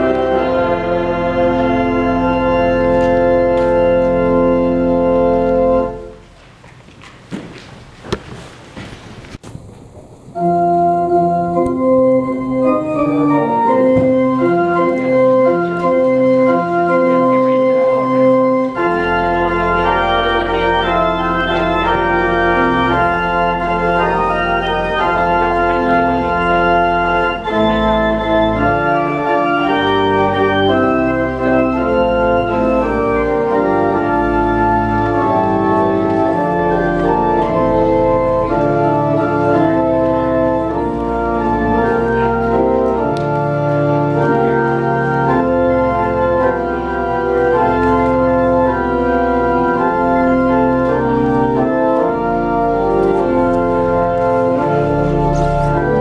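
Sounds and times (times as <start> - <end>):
deep organ pedal bass: 0.0 - 6.2, 10.4 - 56.0
church organ chords: 0.0 - 6.3, 10.3 - 56.0.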